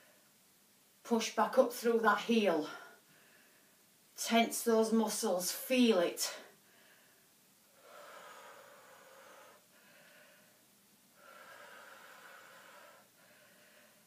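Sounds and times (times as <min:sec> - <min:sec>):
woman breathing heavily: 0:02.7 - 0:03.8, 0:06.4 - 0:14.0.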